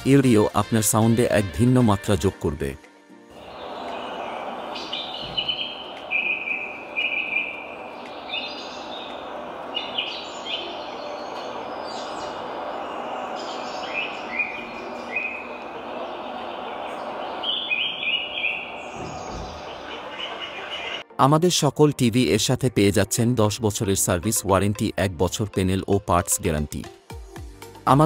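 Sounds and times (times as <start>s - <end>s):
steady background hiss: 3.3s - 21.0s
birds chirping and whistling: 3.4s - 21.0s.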